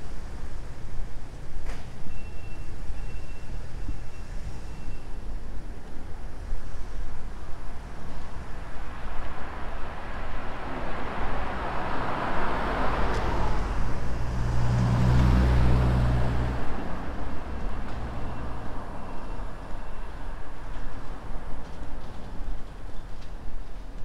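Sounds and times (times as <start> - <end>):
vehicle passing: 9.8 - 19.0
low engine hum: 10.1 - 19.4.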